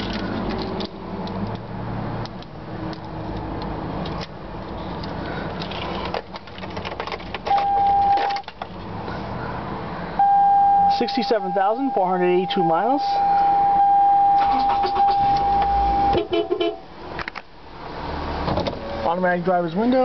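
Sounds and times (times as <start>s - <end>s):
electronic beep: 10.2s - 16.2s.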